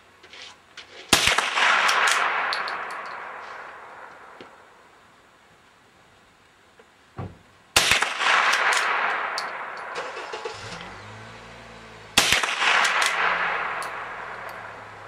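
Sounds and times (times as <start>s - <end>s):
rifle shots with echo: 1.1s - 4.7s, 7.8s - 10.0s, 12.2s - 15.0s.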